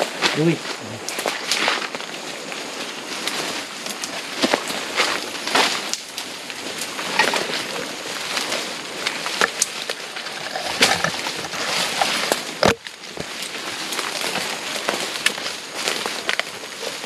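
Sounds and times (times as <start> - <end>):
footsteps through leaf litter: 0.0 - 17.0
twigs snapping: 9.0 - 17.0.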